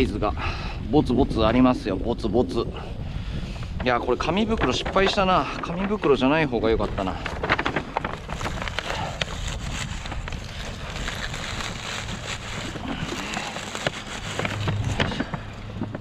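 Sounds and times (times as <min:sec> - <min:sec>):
wind rushing over microphone: 0:00.0 - 0:16.0
handling crackles and rustles: 0:03.6 - 0:16.0.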